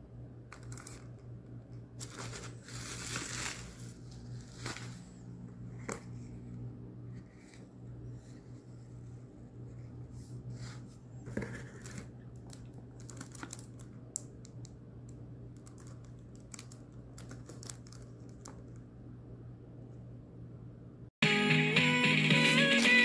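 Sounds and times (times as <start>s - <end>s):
shrink-wrapped box crinkling: 0.6s - 1.1s, 2.0s - 5.2s, 11.8s - 13.9s, 15.6s - 18.5s.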